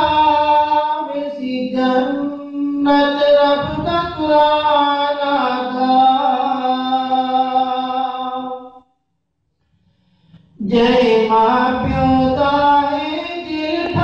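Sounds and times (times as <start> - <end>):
man chanting a poem: 10.6 - 14.0.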